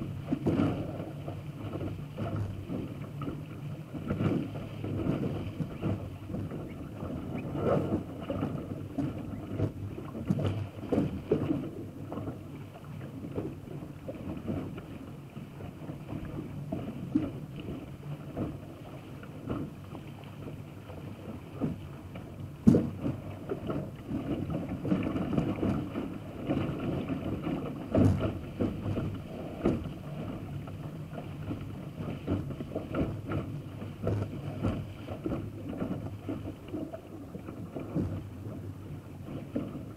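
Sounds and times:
water rushing along a hull: 0.0s - 39.9s
wind on microphone: 0.0s - 39.9s
knocks on hull: 0.2s - 12.3s, 21.3s - 39.9s.

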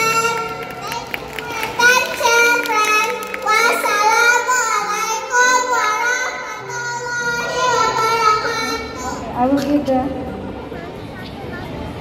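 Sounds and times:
girl singing: 1.8s - 8.8s.

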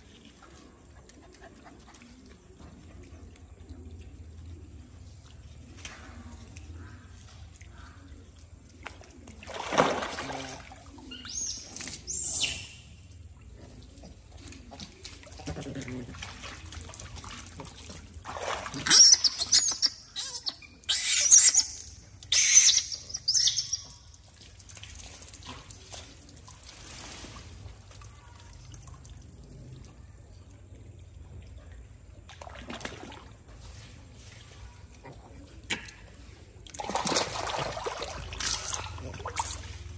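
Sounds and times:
water trickling into pond: 0.0s - 39.9s
macaques high-pitched calls: 18.8s - 23.9s.

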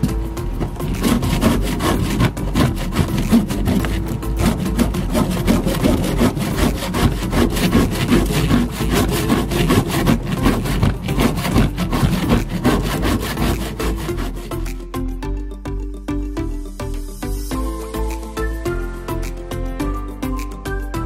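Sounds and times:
hand plane shaving wood: 0.6s - 14.8s.

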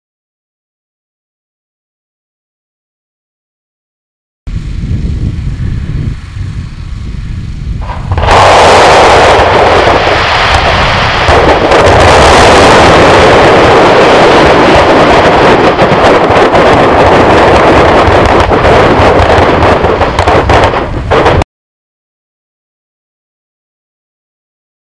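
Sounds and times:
wind rumble on microphone: 4.5s - 21.4s
roar of bursting firework shells: 7.8s - 21.4s.

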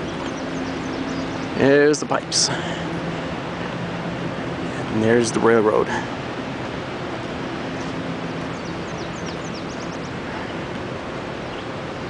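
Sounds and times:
bird chirping: 0.0s - 1.7s, 8.4s - 10.7s, 11.4s - 11.8s
steady rushing noise: 0.0s - 12.0s.

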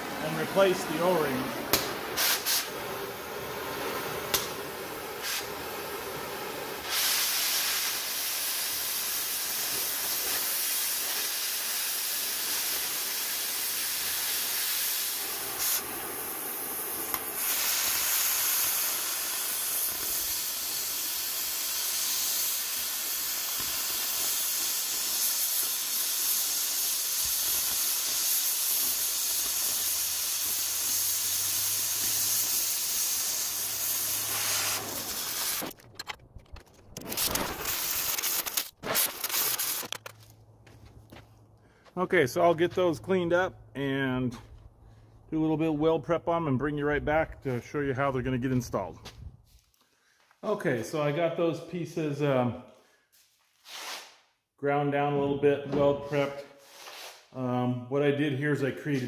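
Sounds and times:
cutting torch hissing: 0.0s - 35.8s, 37.0s - 40.0s
cutting torch popping: 0.0s - 40.4s.

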